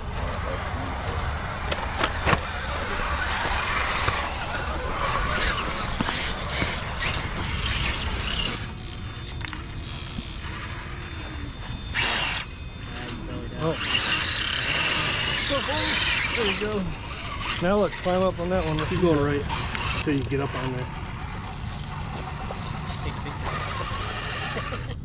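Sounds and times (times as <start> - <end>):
electric motor whine: 0.0 - 25.0.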